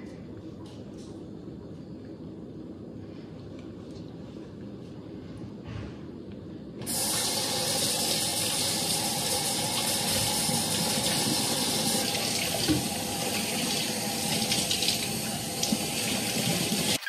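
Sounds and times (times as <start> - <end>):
faucet running into sink: 6.9 - 17.0.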